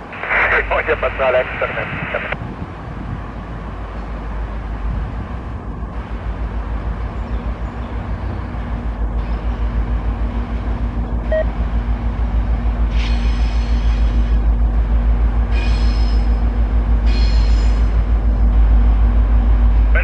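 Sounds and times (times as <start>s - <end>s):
diesel locomotive engine rumble: 0.0s - 20.0s
train wheels squealing on track: 12.9s - 14.5s, 15.5s - 18.1s.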